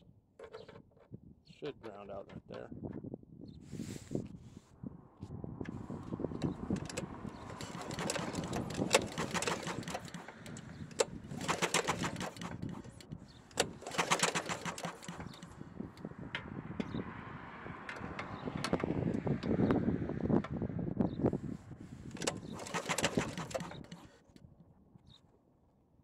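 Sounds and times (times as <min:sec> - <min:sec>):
recoil starter clicking and whirring: 0:05.7 - 0:17.0, 0:17.8 - 0:19.8, 0:22.0 - 0:24.4.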